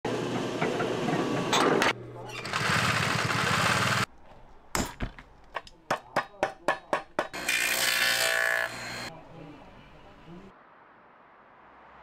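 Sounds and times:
grinding wheel on leather: 2.3 - 4.1.

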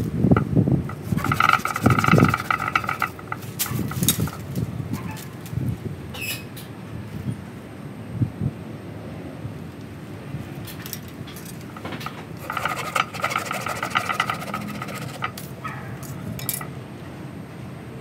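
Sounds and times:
pruning saw rasping: 0.9 - 4.5, 11.5 - 15.7.

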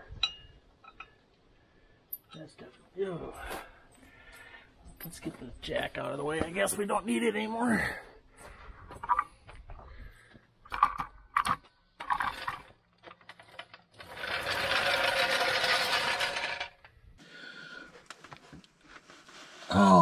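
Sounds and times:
jack casters rattling: 10.7 - 16.9.

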